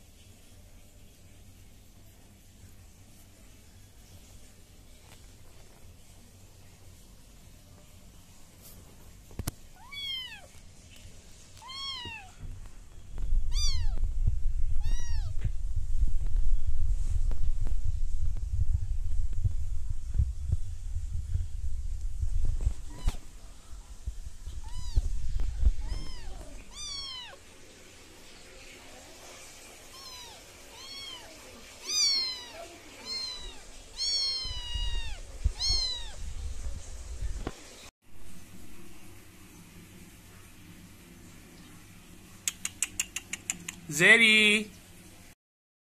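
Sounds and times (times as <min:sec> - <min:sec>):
kitten meowing: 0:09.8 - 0:10.5, 0:11.6 - 0:12.4, 0:13.5 - 0:14.0, 0:14.8 - 0:15.4, 0:22.8 - 0:23.2, 0:24.6 - 0:25.1, 0:25.7 - 0:27.4, 0:29.9 - 0:36.2
dull low bumps: 0:12.4 - 0:26.7
low rumble: 0:12.5 - 0:26.8.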